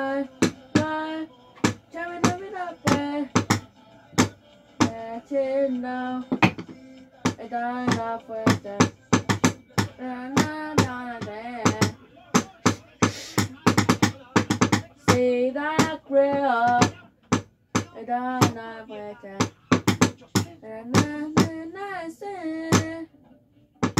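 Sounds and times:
person singing: 0.0 - 17.0, 17.8 - 23.1
percussive clicks and knocks: 1.6 - 5.0, 6.3 - 15.2, 15.8 - 18.6, 19.4 - 21.6.

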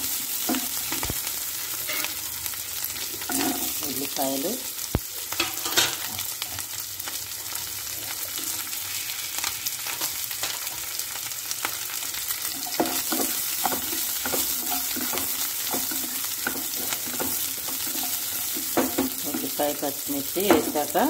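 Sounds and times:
onions sizzling in hot oil: 0.0 - 21.0
spatula scraping and knocking pan: 12.5 - 19.6.

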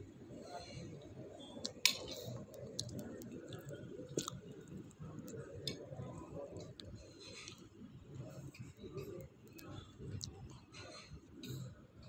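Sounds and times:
dining room background noise: 0.0 - 12.0.

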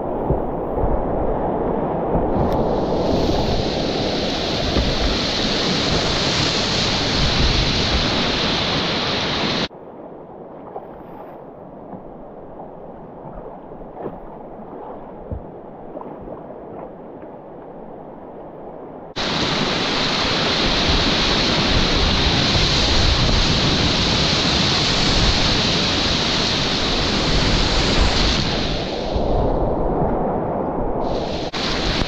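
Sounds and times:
rushing water: 0.0 - 32.0.

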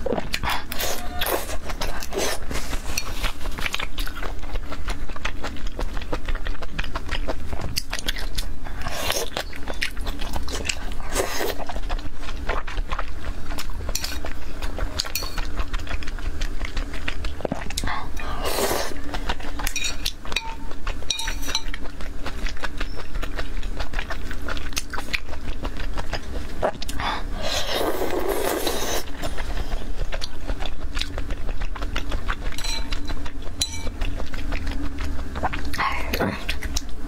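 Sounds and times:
low steady hum: 0.0 - 37.0
wet chewing and mouth clicks: 0.0 - 37.0
loud slurp: 0.3 - 3.8, 17.3 - 19.4, 26.6 - 30.0.

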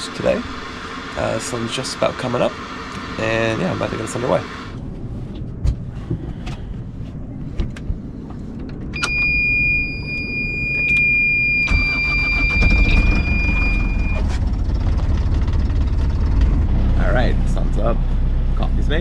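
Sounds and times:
diesel engine cranking and running: 0.0 - 4.8, 10.6 - 19.0
alarm buzzer high tone: 9.0 - 14.3.

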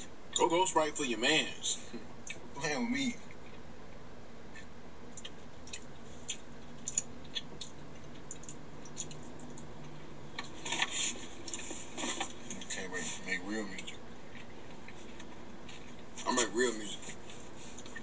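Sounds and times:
faint steady hum: 0.0 - 18.0
chewing clicks and smacks: 2.2 - 2.5, 5.1 - 12.8.

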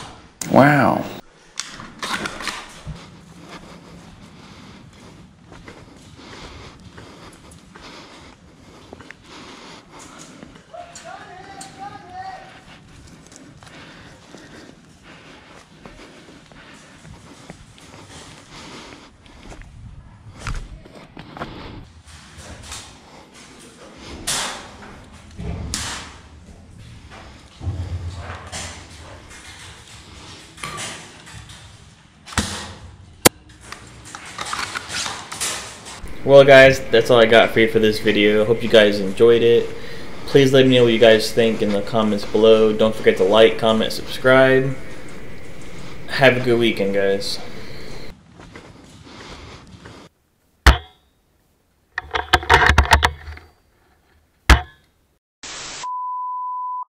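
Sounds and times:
handling and shuffling noise: 33.5 - 50.1
tv static: 36.0 - 48.1.

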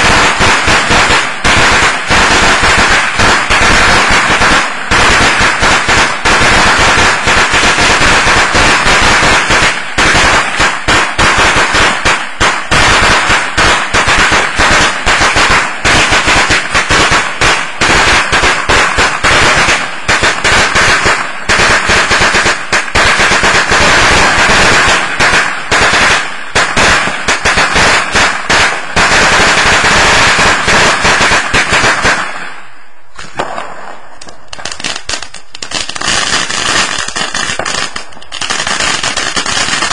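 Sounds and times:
firecrackers popping: 0.0 - 39.9.

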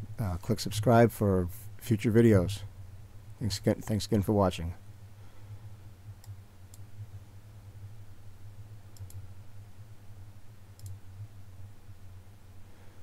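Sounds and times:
steady low hum: 0.0 - 13.0
computer mouse buttons clicking: 9.0 - 9.2, 10.8 - 11.0.

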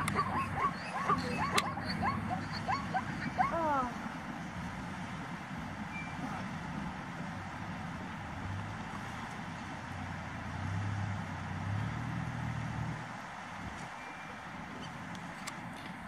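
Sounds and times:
flowing water rushing: 0.0 - 16.0.

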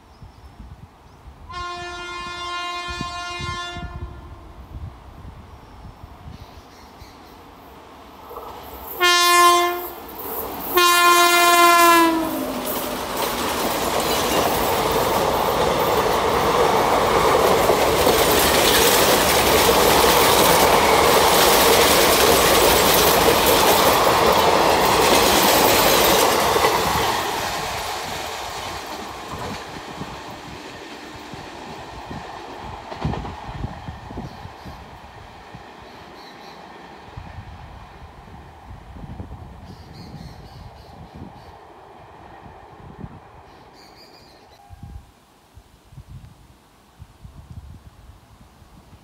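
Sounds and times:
train rushing past with wheel clatter: 1.2 - 45.0
locomotive horn blast: 1.5 - 4.5, 9.0 - 10.0, 10.7 - 12.7.

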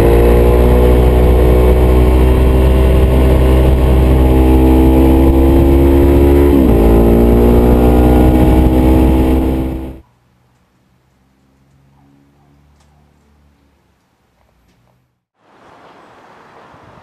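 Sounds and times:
motorcycle engine revving: 0.0 - 10.0
wind rumble on microphone: 0.0 - 10.0.

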